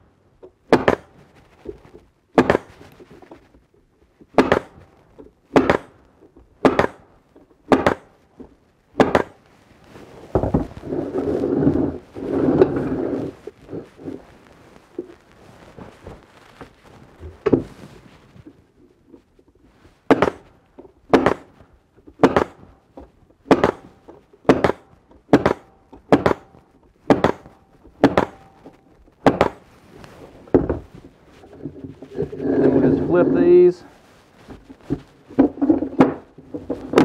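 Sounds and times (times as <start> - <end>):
wooden parts knocking: 10.3 - 10.7, 34.5 - 37.0.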